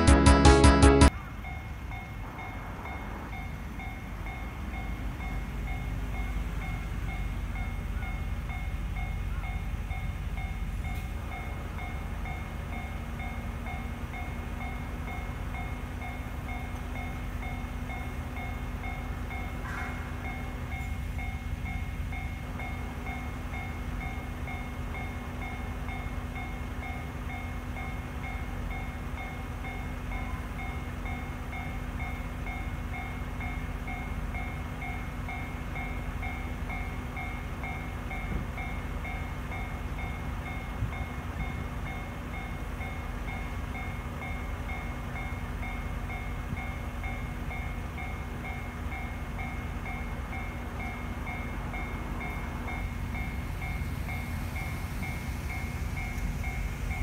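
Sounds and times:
level-crossing warning bell: 0:00.0 - 0:57.0
steady low rumble: 0:51.3 - 0:57.0.

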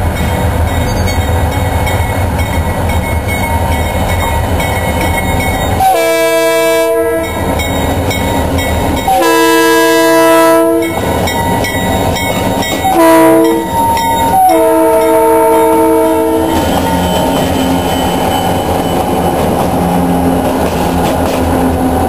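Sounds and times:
train wheels clacking on rails: 0:00.0 - 0:22.0
locomotive air horn: 0:05.8 - 0:07.4, 0:09.1 - 0:11.0, 0:12.8 - 0:16.6.

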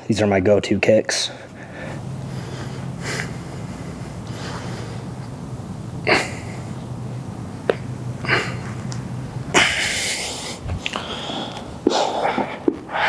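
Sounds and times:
low steady hum: 0:00.0 - 0:13.0
person breathing hard: 0:01.3 - 0:05.2, 0:09.6 - 0:13.0.

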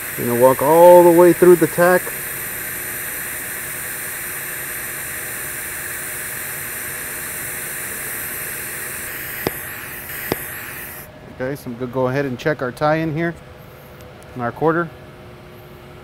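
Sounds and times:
welding arc hissing: 0:00.0 - 0:11.1.

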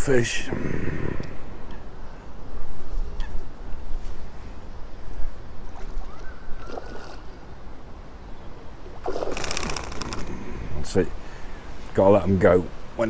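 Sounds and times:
fish splashing at surface: 0:09.0 - 0:10.3.

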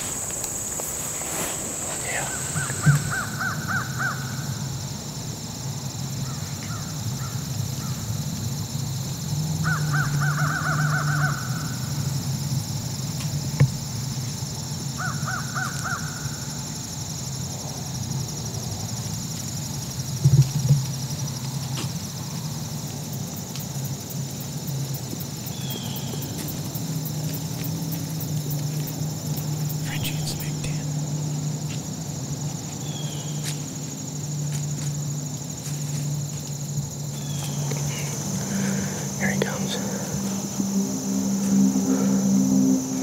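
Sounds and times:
crows cawing: 0:02.6 - 0:04.5, 0:09.6 - 0:11.8, 0:15.0 - 0:16.4.

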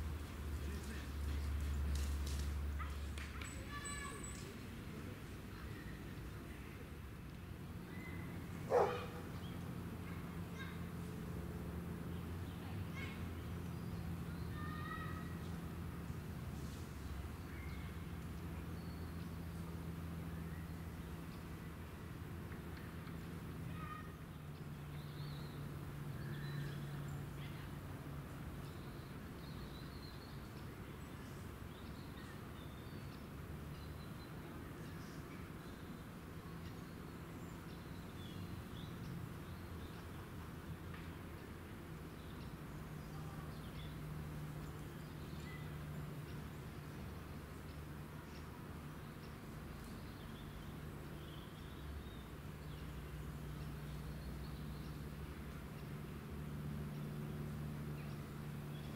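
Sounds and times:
faint high bird chirps: 0:03.4 - 0:04.6.

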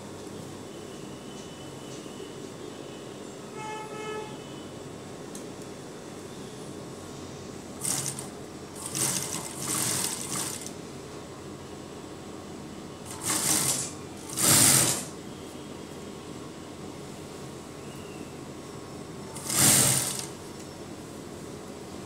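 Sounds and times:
sewing machine hum: 0:07.8 - 0:10.8, 0:13.0 - 0:15.2, 0:19.3 - 0:20.6
sewing machine stitching: 0:07.8 - 0:10.8, 0:13.1 - 0:15.2, 0:19.3 - 0:20.4.

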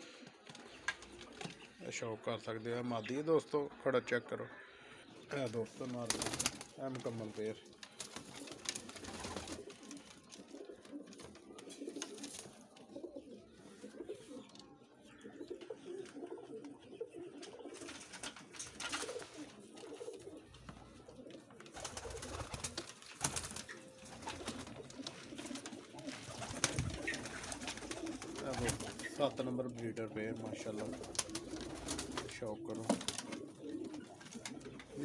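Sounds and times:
pigeons cooing: 0:03.5 - 0:35.0.

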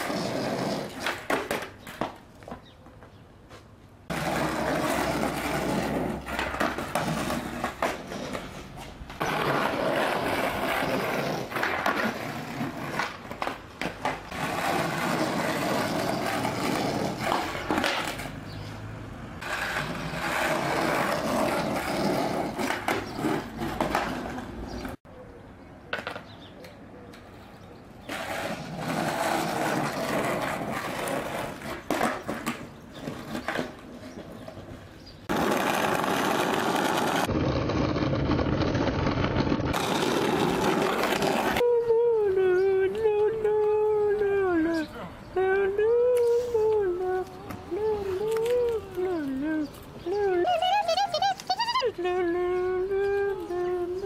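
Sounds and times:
skateboard clacking on ground: 0:00.0 - 0:03.1, 0:04.1 - 0:18.4, 0:19.4 - 0:25.0, 0:25.9 - 0:27.4, 0:28.1 - 0:41.7
skateboard wheels rolling on asphalt: 0:00.0 - 0:25.0, 0:25.9 - 0:26.5, 0:27.1 - 0:41.7, 0:45.8 - 0:52.0.

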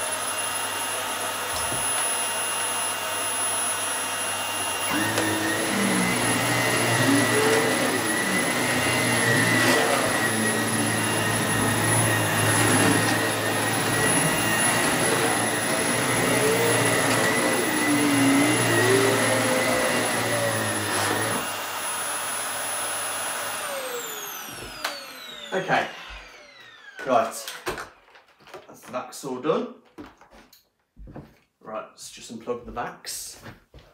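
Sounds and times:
vacuum cleaner motor whine: 0:00.0 - 0:28.0
vacuum motor spinning down: 0:00.2 - 0:27.0.

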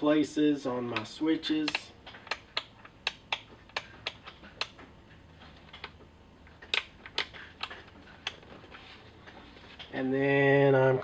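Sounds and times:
toggle switches clicking: 0:01.0 - 0:04.8, 0:06.6 - 0:08.4.

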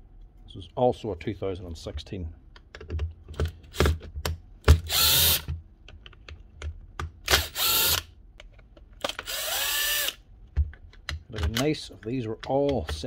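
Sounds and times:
handling clicks and knocks: 0:02.6 - 0:04.9, 0:10.5 - 0:13.0
cordless drill motor whining: 0:04.9 - 0:05.5, 0:07.3 - 0:08.1, 0:09.2 - 0:10.2.

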